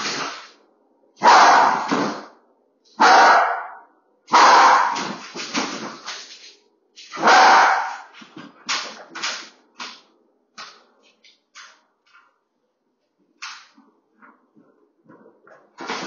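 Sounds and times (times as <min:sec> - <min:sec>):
dog barking: 0:01.2 - 0:01.9, 0:03.0 - 0:05.2, 0:07.1 - 0:08.1.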